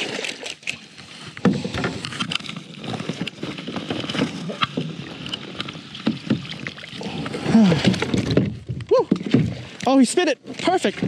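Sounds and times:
fish thrashing and splashing: 0:00.0 - 0:09.8
net knocking against kayak: 0:01.4 - 0:06.8.

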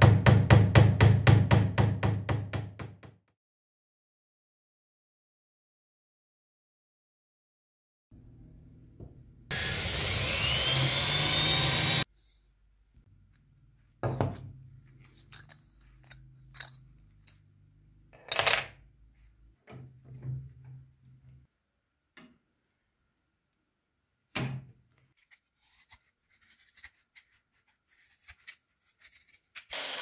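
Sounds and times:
electric drill boring into wood: 0:09.5 - 0:12.1, 0:29.7 - 0:30.0.

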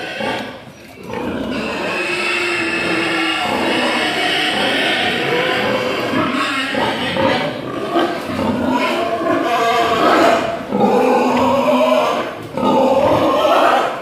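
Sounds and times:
pigs grunting: 0:00.0 - 0:14.0.

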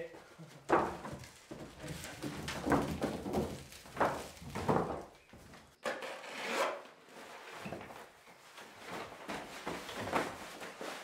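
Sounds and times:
underlay roll scraping wooden floor: 0:00.7 - 0:11.0.

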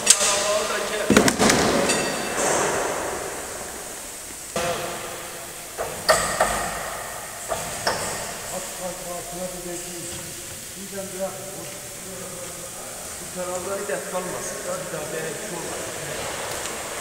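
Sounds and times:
steady machine hiss: 0:00.0 - 0:17.0
sharp metallic knocks: 0:01.0 - 0:08.6.

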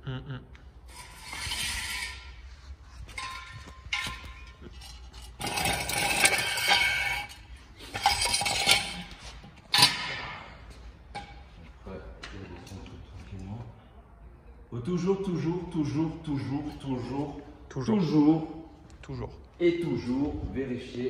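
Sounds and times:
metal jack stand clinking and scraping: 0:03.0 - 0:10.2.

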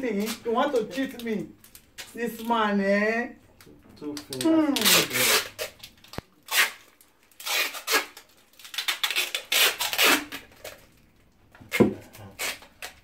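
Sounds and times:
sticky tape ripping off roll: 0:04.1 - 0:10.9, 0:11.6 - 0:13.0.

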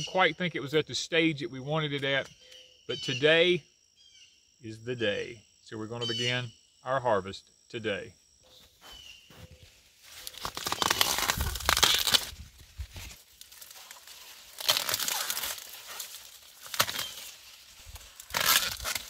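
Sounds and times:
corn leaves rustling and tearing: 0:09.6 - 0:19.0
corn ears snapping off stalks: 0:10.0 - 0:19.0.

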